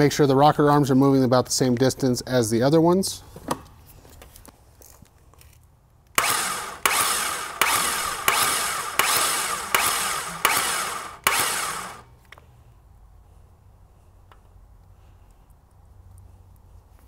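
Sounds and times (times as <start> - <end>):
starter motor cranking engine: 6.2 - 12.1.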